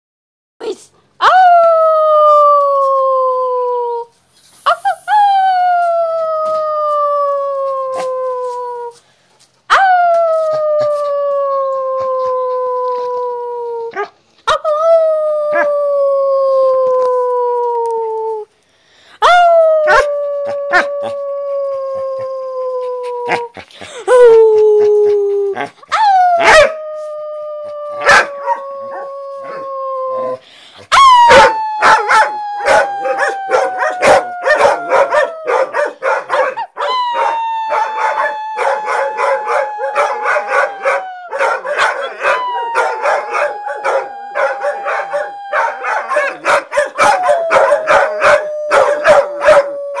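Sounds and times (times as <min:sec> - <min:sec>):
dogs howling: 0:19.5 - 0:23.5, 0:24.2 - 0:50.0.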